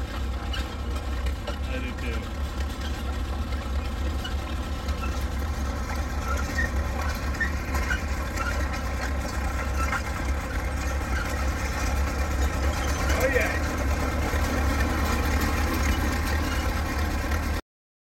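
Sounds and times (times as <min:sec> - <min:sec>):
crawler tracks creeping: 0:00.0 - 0:17.6
tractor engine running steadily: 0:00.0 - 0:17.6.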